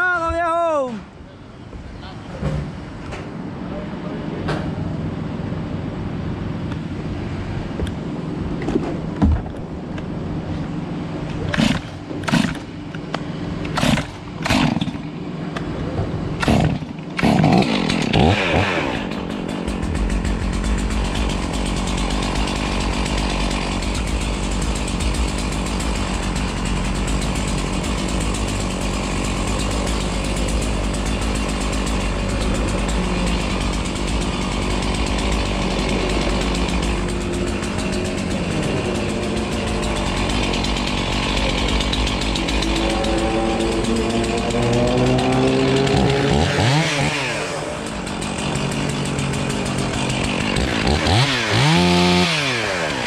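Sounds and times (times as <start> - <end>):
chainsaw engine running: 10.8 - 53.0.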